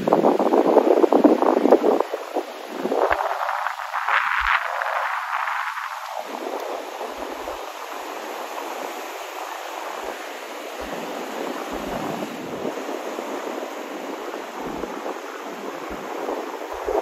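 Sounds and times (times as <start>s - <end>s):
sea surf rushing: 0.0s - 17.0s
wind on microphone: 0.0s - 17.0s
low thumps: 11.7s - 12.9s, 14.5s - 17.0s.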